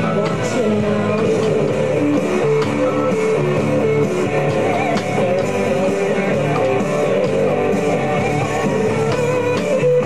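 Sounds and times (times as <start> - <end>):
electric guitar playing: 0.0 - 10.0
live band music: 0.0 - 10.0.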